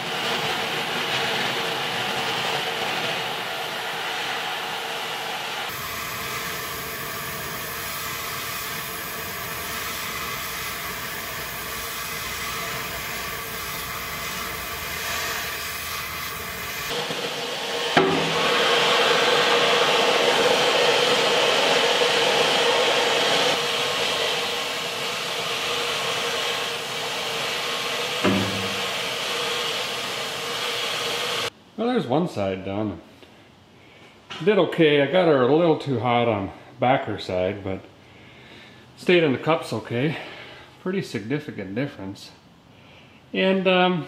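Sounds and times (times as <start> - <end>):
gas torch flame hissing: 0.0 - 31.5.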